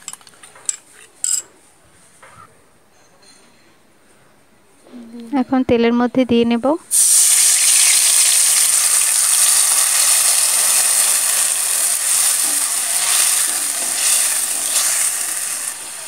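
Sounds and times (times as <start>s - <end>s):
spice paste sizzling in hot oil: 6.9s - 16.0s.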